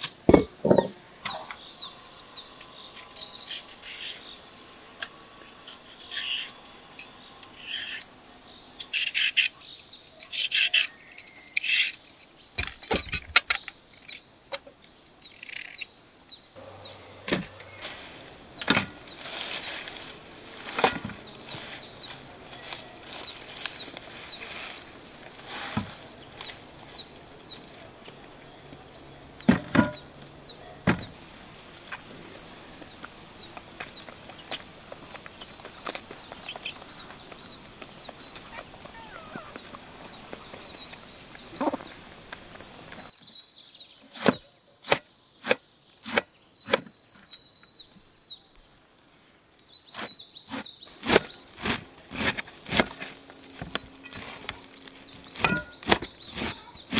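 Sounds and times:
small birds chirping: 0.0 - 56.9
peeler scraping carrots: 5.6 - 6.7, 55.3 - 56.9
leaves rustling: 16.6 - 43.2, 48.9 - 56.9.

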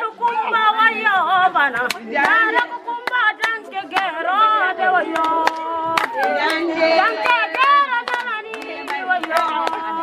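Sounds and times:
women singing unaccompanied: 0.0 - 10.0
sharp hand claps: 1.8 - 4.1, 5.2 - 10.0.

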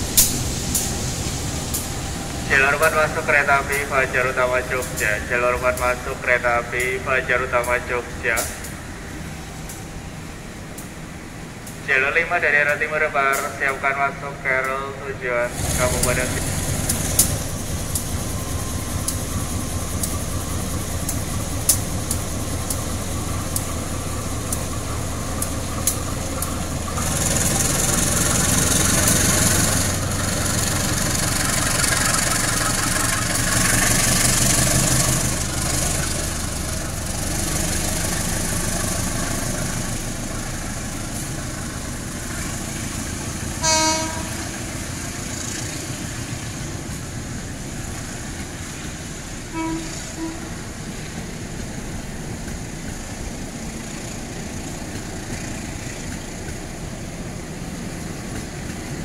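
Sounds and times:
train wheel clicks: 0.0 - 8.8, 9.6 - 59.0
locomotive engine rumble: 0.0 - 59.0
hissing rush of passing coaches: 11.9 - 43.6
train horn: 43.6 - 44.6, 49.5 - 50.6.

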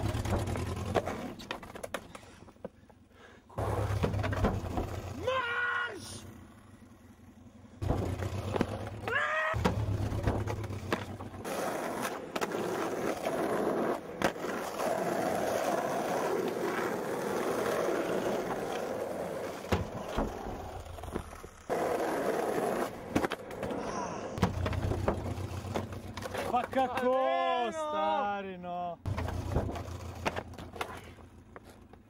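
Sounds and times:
skateboard wheels rolling on asphalt: 0.0 - 27.6, 29.0 - 32.0
skateboard clacks: 3.6 - 5.1, 7.8 - 23.8, 24.4 - 27.2.

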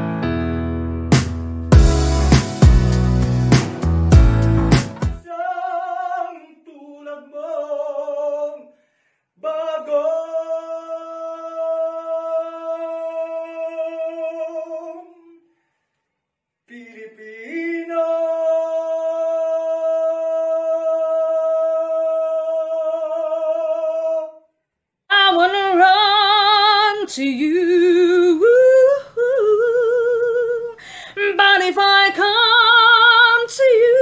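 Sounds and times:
woman singing with vibrato: 25.1 - 34.0.

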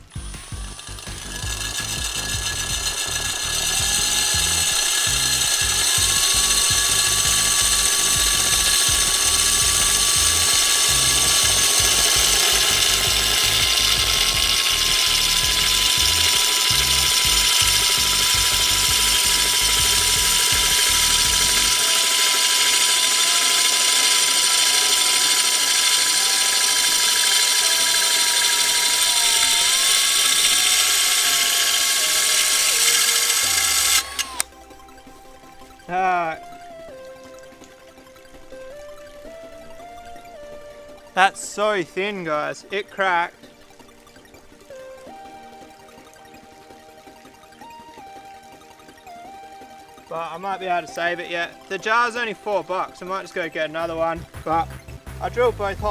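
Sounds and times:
hole saw grinding into glass: 0.0 - 34.4
cordless drill whining: 0.0 - 34.6.

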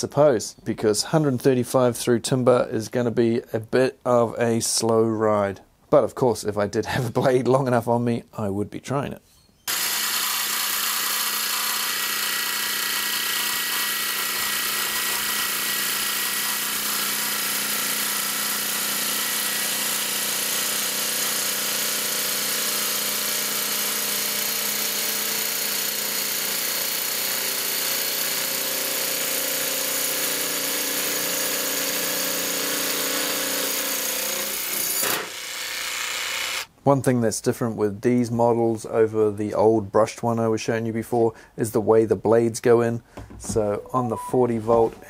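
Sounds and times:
jigsaw cutting through a board: 9.7 - 36.7.

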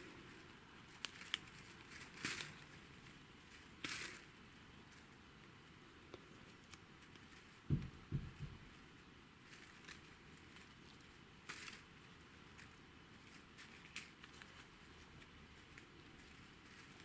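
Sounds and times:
soft tape rustles: 0.0 - 17.0
low thumps: 7.7 - 8.6.

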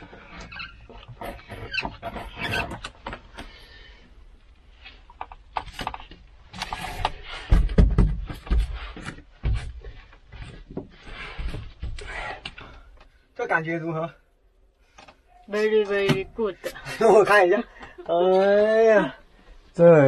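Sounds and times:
dull thumps: 6.8 - 12.0.

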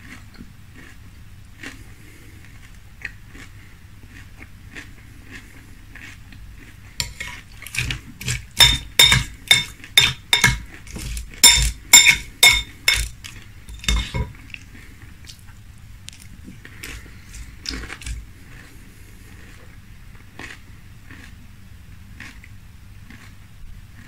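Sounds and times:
metal spoon clinking on glass bowl: 7.0 - 14.3.

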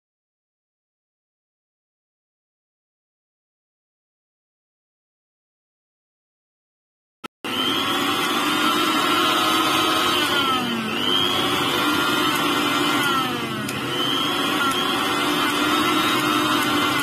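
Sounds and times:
mixer grinder motor whining: 7.4 - 17.0.

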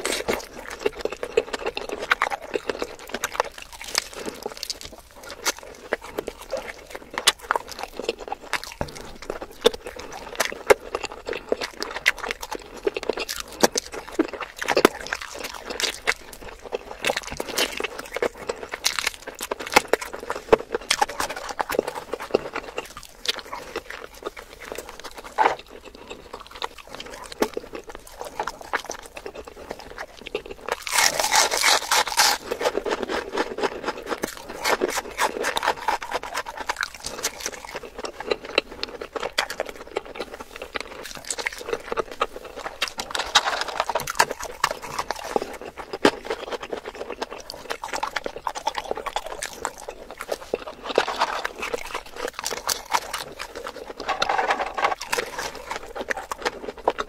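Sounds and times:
chewing and wet mouth sounds: 0.0 - 57.0
crisp skin crunching under bites: 0.0 - 57.0.

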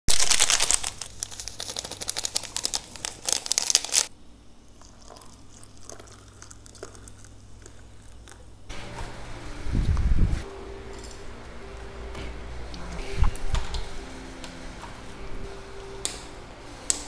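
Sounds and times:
plastic sachet crinkling and tearing: 0.1 - 4.1.

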